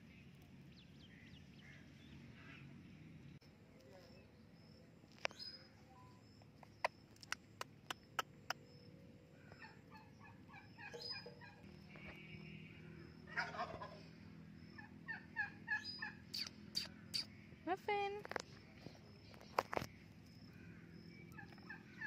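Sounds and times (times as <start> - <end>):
sharp clicks: 6.7 - 8.6
parakeet chattering: 15.8 - 17.3.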